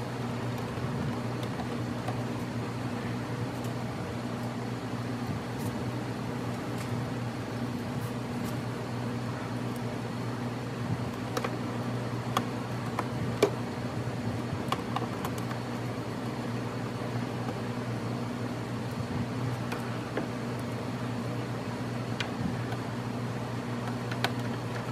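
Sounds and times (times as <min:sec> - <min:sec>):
low machine hum: 0:00.0 - 0:24.9.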